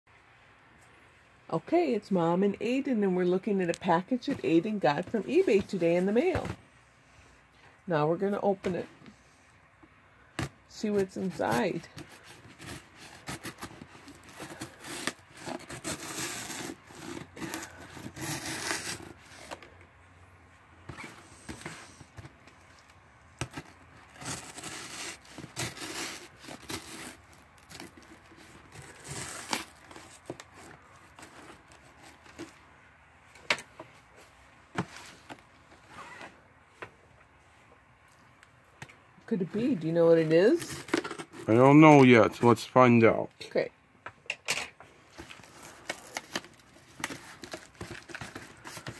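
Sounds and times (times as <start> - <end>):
knife scraping packing tape: 11.1 - 19.6, 23.4 - 32.5.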